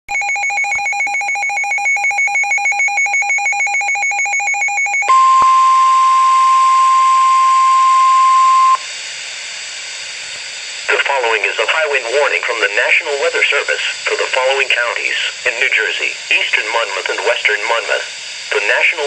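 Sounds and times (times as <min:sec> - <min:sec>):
rapid electronic beeping: 0:00.1 - 0:05.7
single-pitch warning alarm tone: 0:00.1 - 0:08.8
radio hiss: 0:09.7 - 0:19.0.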